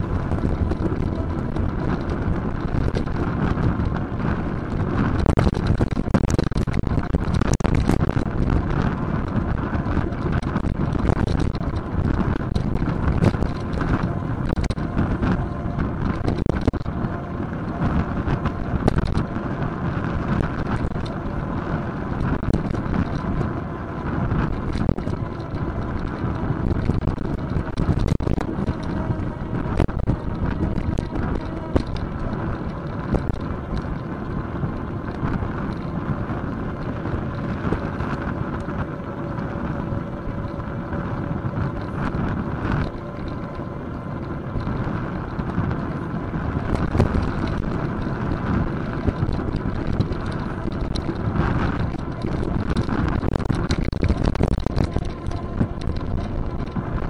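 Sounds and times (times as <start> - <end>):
bike knocks and rattles: 0.0 - 57.0
tyres rumbling on road: 0.0 - 57.0
wind buffeting microphone: 0.0 - 57.0.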